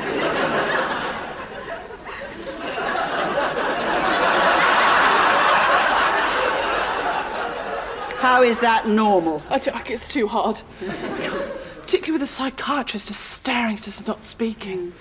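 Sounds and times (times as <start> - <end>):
audience laughing: 0.0 - 9.4, 10.8 - 11.9.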